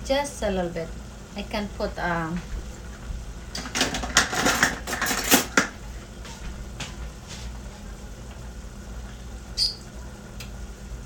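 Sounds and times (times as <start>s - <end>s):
kitchen utensils clattering: 3.6s - 5.7s.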